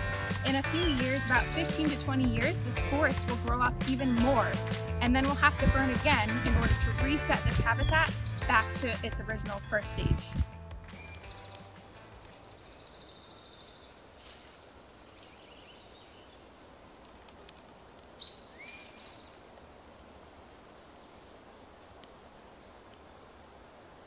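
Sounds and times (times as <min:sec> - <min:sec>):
small birds singing: 0:00.0 - 0:04.6, 0:05.3 - 0:10.2, 0:10.9 - 0:14.0, 0:14.8 - 0:21.6
faint steady hiss: 0:11.4 - 0:24.0.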